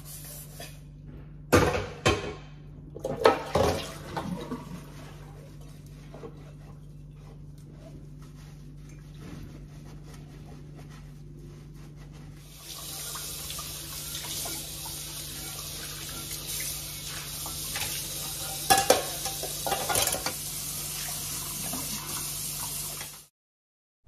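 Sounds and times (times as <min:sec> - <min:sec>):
pots or dishes clanking: 0:17.4 - 0:20.4.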